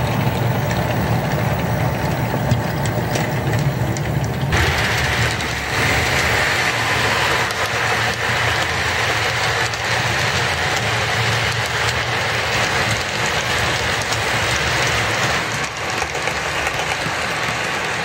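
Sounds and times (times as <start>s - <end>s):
light clicks from rail joints: 0.0s - 4.5s
model train wheels rushing on rails: 0.0s - 18.0s.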